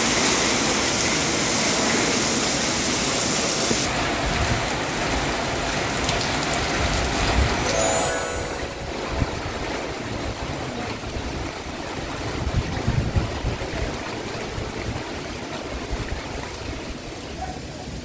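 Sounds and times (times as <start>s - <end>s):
heavy rain falling: 3.9s - 7.5s.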